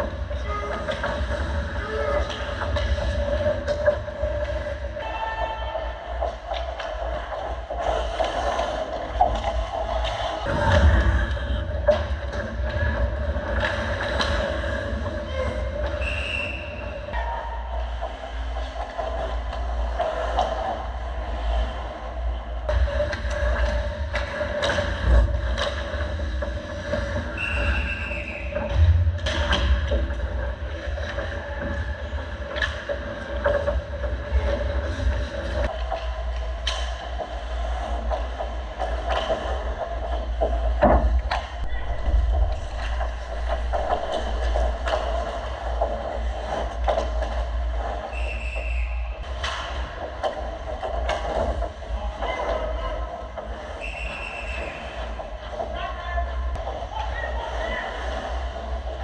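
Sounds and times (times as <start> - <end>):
low rumble: 0.0 - 20.0, 28.7 - 48.0
sticks and puck clattering: 0.0 - 22.0, 22.7 - 55.8
skates scraping ice: 6.1 - 17.1
high squeal: 15.3 - 17.4, 27.4 - 28.6
hockey sticks and puck clacking: 35.6 - 54.9.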